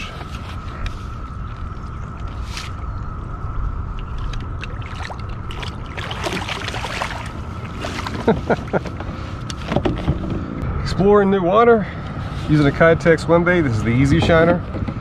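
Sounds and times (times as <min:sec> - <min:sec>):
steady low rumble: 0:00.0 - 0:15.0
water splashing in a net: 0:04.8 - 0:08.2.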